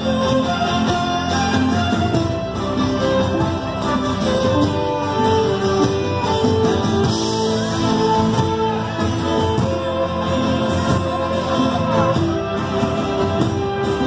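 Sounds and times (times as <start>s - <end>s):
fiddle: 0.0s - 14.0s
strummed acoustic guitar: 0.0s - 14.0s
upright double bass: 0.0s - 14.0s.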